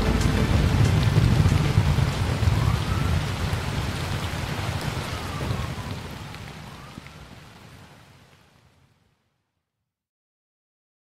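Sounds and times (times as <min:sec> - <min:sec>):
low rumble: 0:00.0 - 0:06.7
heavy rain pouring: 0:00.0 - 0:08.8.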